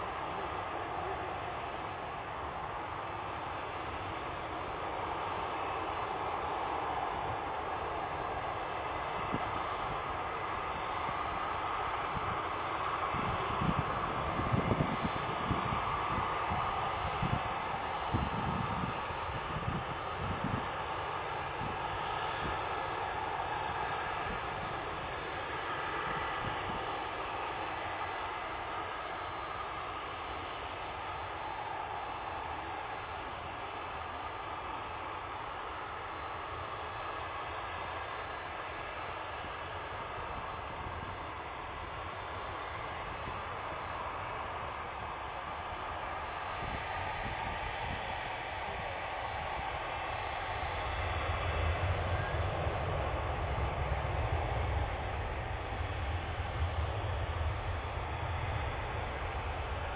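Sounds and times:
distant airliner engines: 0:00.0 - 0:59.9
high whine: 0:00.0 - 0:59.9
wind buffeting on microphone: 0:13.1 - 0:17.5, 0:18.1 - 0:20.7.

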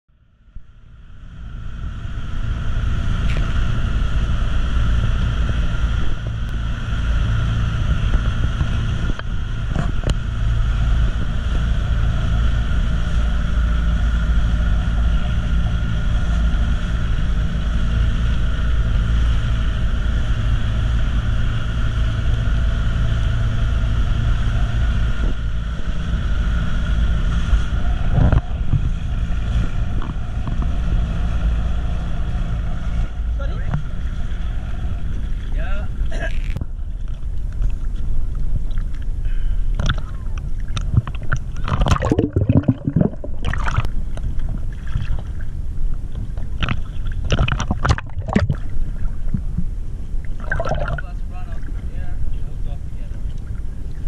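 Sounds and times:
boat engine droning: 0:00.1 - 0:54.0
wind on microphone: 0:01.3 - 0:54.0.

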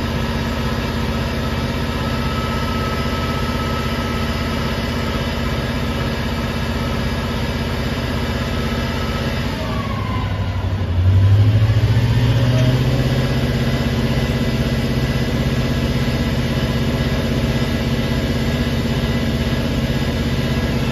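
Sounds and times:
diesel engine driving pump: 0:00.0 - 0:20.9.

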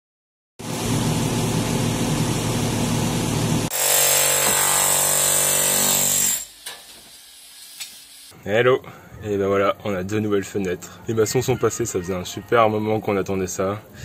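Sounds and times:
power tools running: 0:00.9 - 0:07.2.

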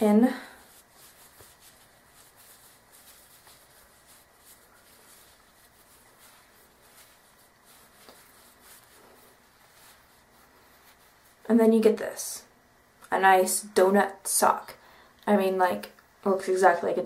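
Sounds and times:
faint rustling of sock: 0:00.0 - 0:12.3.

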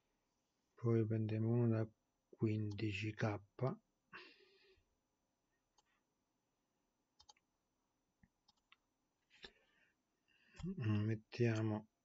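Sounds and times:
keyboard typing clicks: 0:07.2 - 0:07.4.

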